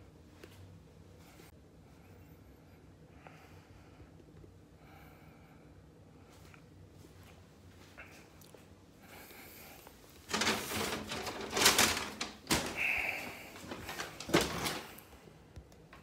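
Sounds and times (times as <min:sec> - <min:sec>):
paper bag rustling: 0:10.2 - 0:15.1.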